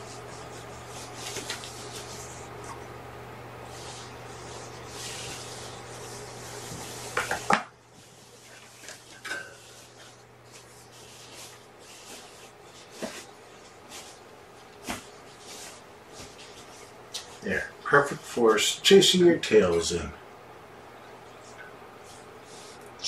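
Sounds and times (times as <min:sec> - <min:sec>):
fabric rustling: 0:07.9 - 0:17.0.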